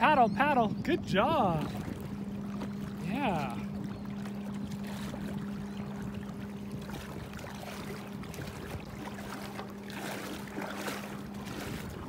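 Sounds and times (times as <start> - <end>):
steady low hum: 0.0 - 12.0
water lapping and trickling: 0.0 - 12.0
water splashing: 0.9 - 12.0.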